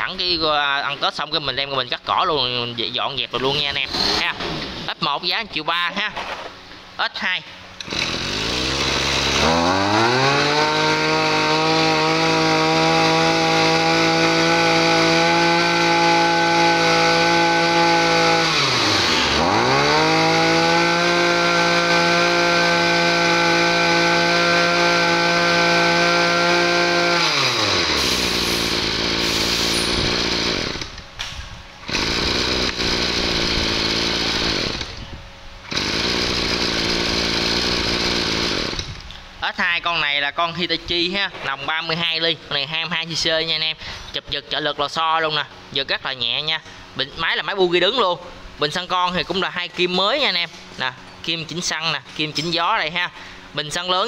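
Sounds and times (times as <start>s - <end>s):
brush cutter engine revving: 3.4s - 5.0s, 7.8s - 31.0s, 31.8s - 39.2s.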